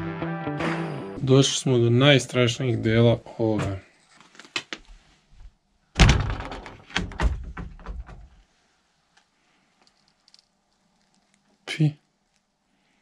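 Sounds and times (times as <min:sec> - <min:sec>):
wood knocking and clattering: 0:06.0 - 0:08.4
wooden door thunk: 0:06.0 - 0:08.4.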